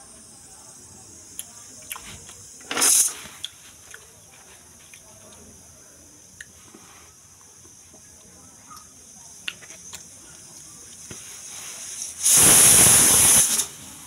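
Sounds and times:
pressure cooker steam hissing: 2.4s - 3.4s, 11.0s - 14.0s.

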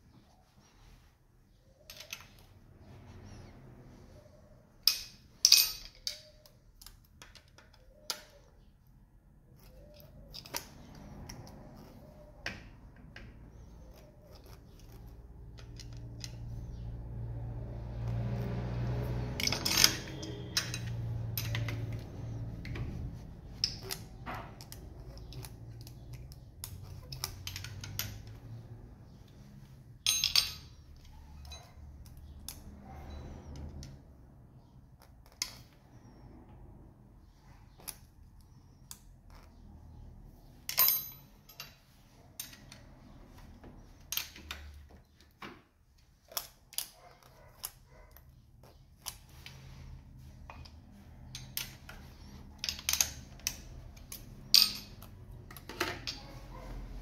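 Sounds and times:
metal tools clicking on engine: 4.8s - 8.5s, 13.0s - 22.8s, 23.5s - 34.0s, 46.2s - 56.6s.

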